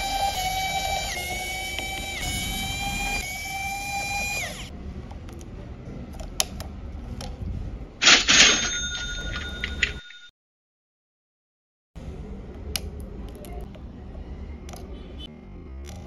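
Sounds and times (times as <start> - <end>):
electric screwdriver motor whining: 0.0 - 4.7.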